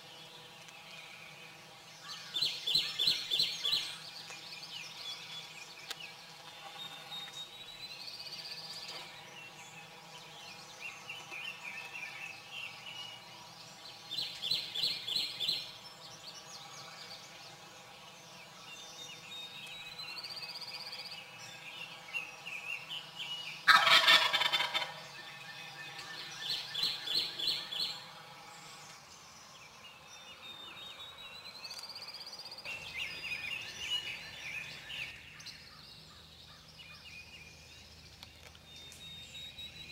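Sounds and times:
songbirds singing: 0.0s - 39.9s
turkey gobbling: 23.7s - 25.0s.

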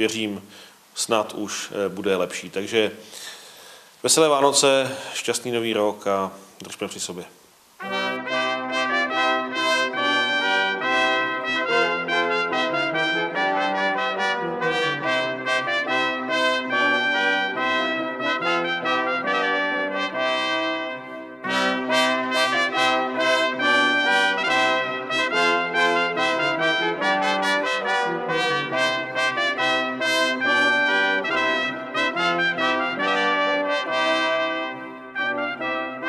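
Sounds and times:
brass band playing: 7.8s - 36.0s.

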